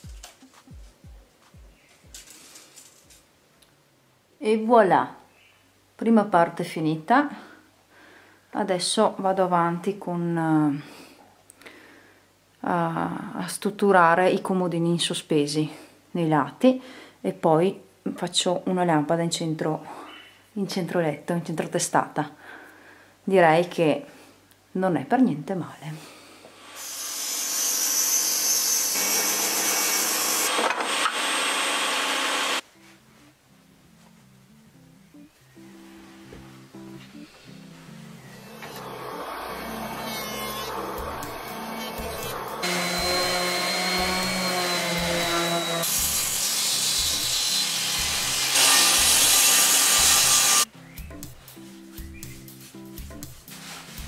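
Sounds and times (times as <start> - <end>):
handheld power tool humming: 26.6 - 32.6, 38.4 - 50.7
table saw cutting wood: 26.6 - 32.6, 38.3 - 50.7
soft background music: 32.6 - 54.0.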